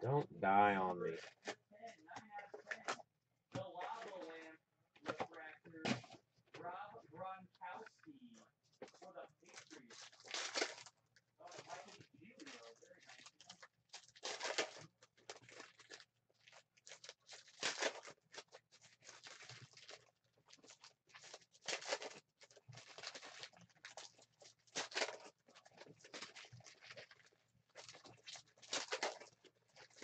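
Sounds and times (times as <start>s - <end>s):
foil wrappers tearing and crinkling: 9.0s - 30.0s.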